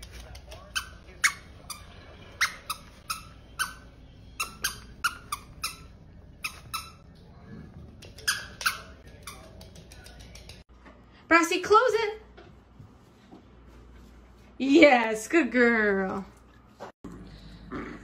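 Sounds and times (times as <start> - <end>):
squeaky toy squeaking: 0.7 - 7.1, 8.2 - 9.5.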